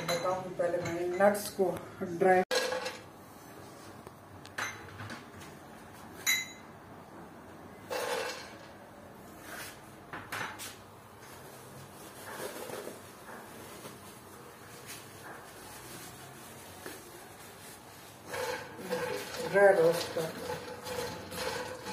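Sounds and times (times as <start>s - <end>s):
metal pan and utensils clattering: 2.5s - 3.0s, 18.3s - 21.9s.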